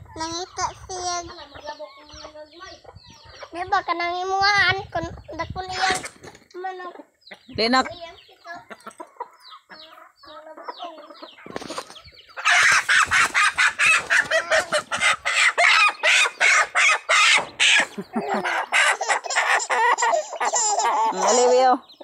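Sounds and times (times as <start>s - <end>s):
chicken squawking loudly: 12.4s - 21.7s.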